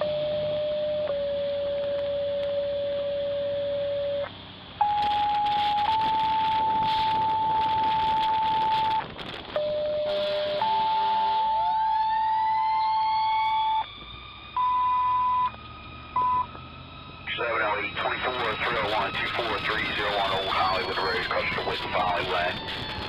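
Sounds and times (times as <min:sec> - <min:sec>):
low steady alert tone: 0:09.6 - 0:13.9, 0:14.6 - 0:16.6.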